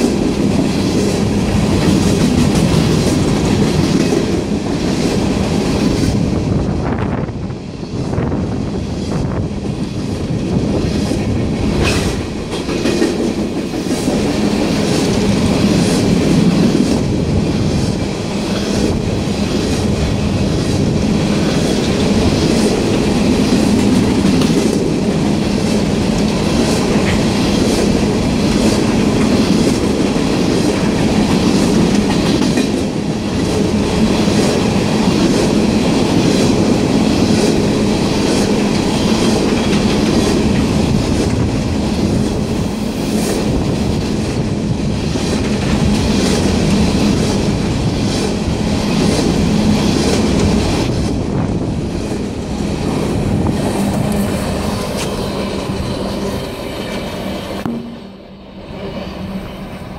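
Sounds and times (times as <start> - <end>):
train rumble: 0.0 - 59.9
train wheels clacking over rail joints: 10.8 - 42.4.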